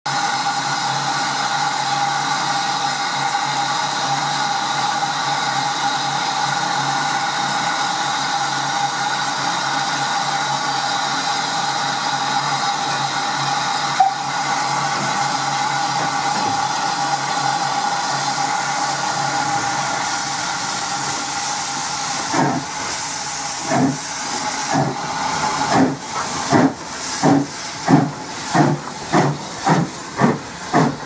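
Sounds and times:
steam locomotive blowing off steam: 0.1s - 31.0s.

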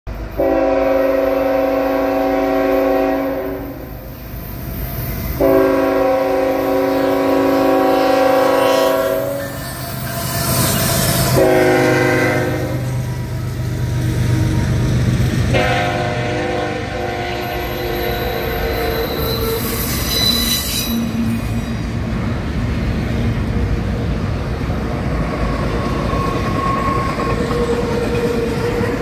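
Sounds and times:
low rumble of locomotives: 0.1s - 29.0s
train wheels running past: 0.1s - 29.0s
locomotive air horn blasts: 0.4s - 3.9s, 5.4s - 9.6s, 11.2s - 13.1s, 15.5s - 19.7s.

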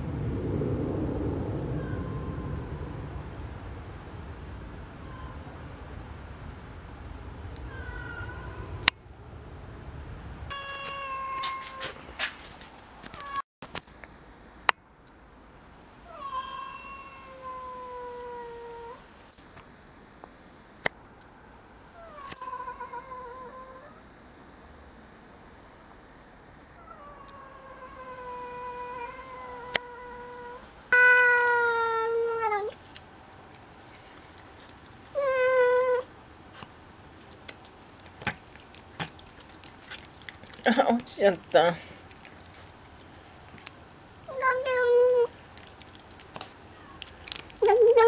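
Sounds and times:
cat meowing: 7.5s - 8.8s, 10.5s - 12.0s, 16.1s - 19.0s, 22.0s - 23.9s, 26.8s - 32.8s, 35.1s - 36.1s, 44.3s - 47.1s.

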